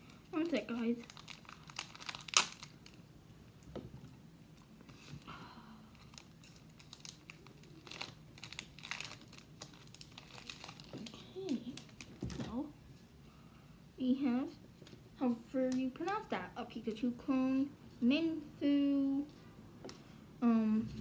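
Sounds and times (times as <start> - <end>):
foil wrapper crinkling and tearing: 0.0 - 3.0, 5.9 - 12.3.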